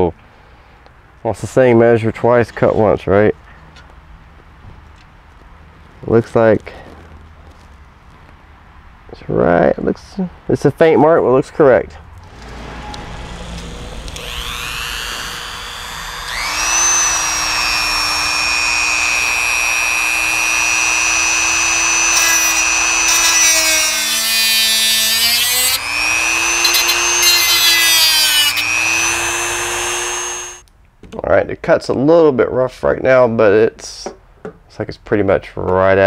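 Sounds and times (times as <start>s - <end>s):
gritty cutting noise: 12.2s - 30.6s
rotary tool motor whine: 12.2s - 30.6s.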